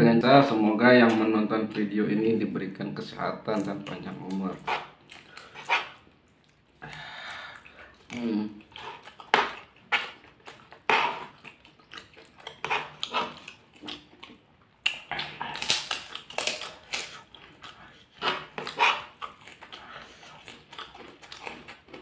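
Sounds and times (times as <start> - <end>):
chewing and mouth noises: 3.5 - 22.0
cracker crunching: 7.6 - 22.0.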